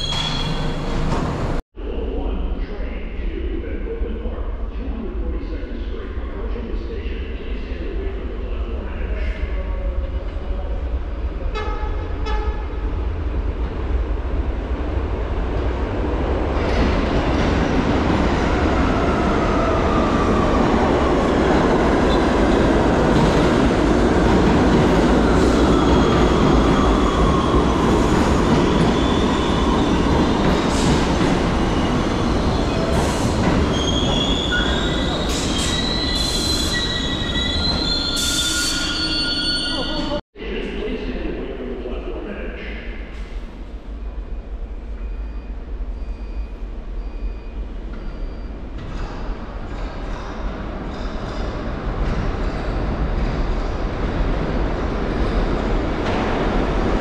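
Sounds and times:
wheel squeal: 0.0 - 1.1, 33.7 - 40.1
subway train wheels rumbling on rails: 0.0 - 57.0
high squeals: 31.8 - 40.2.

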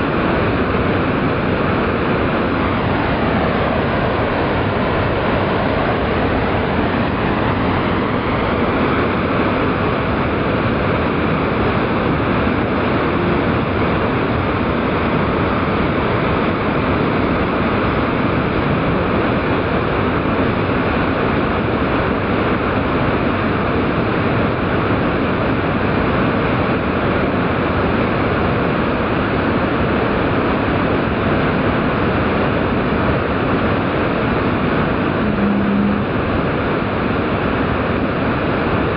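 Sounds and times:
waterfall rushing: 0.1 - 15.4, 34.4 - 37.0.

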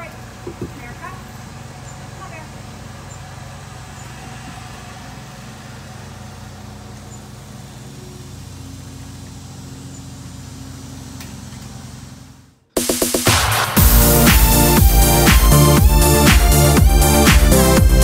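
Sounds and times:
low outdoor background hum: 0.0 - 12.8.

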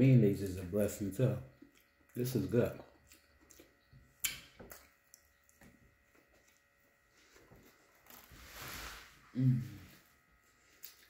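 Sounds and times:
chewing mouth noises: 1.5 - 5.7.

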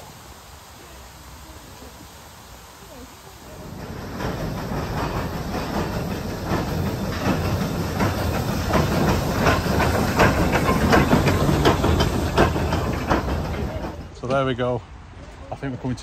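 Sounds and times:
steam hissing: 0.0 - 14.2
steam locomotive passing: 0.0 - 16.0
train wheels clacking over rail joints: 3.5 - 14.8.

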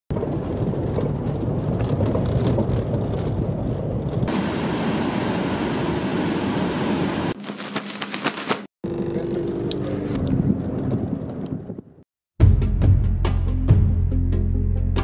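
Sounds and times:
car driving rumble: 0.1 - 4.3.

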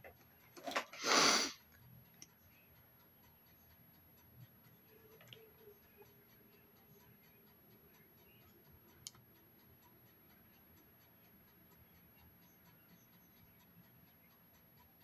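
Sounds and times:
faint ticking: 0.0 - 15.0.

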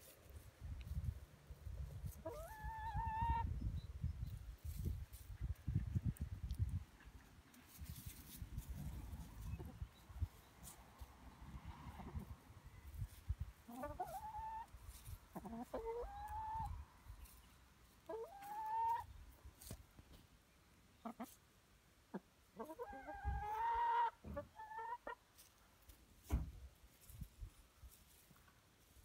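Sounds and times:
hens clucking: 1.8 - 3.6, 7.0 - 10.8, 11.8 - 19.8, 21.0 - 21.4, 22.0 - 25.5.

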